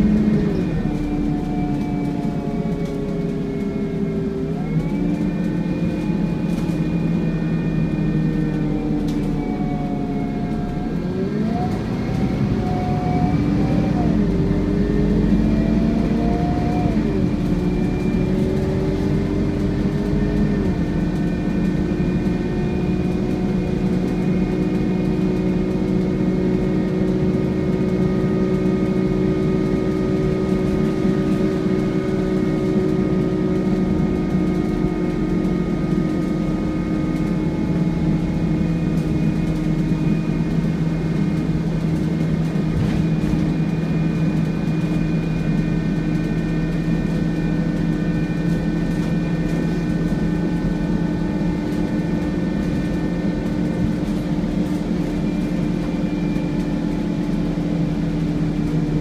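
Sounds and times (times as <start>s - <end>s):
bus whine: 0.0s - 59.0s.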